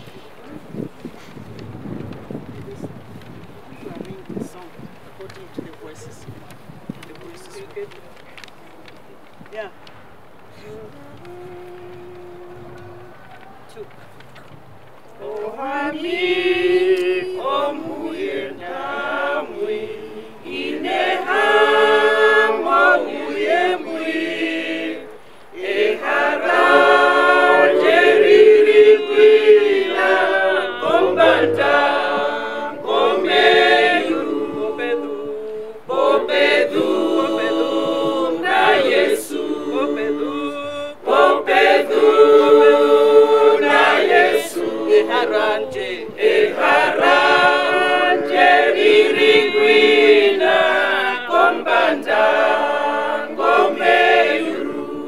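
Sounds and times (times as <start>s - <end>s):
choir singing unaccompanied: 10.8s - 13.6s, 15.2s - 55.0s.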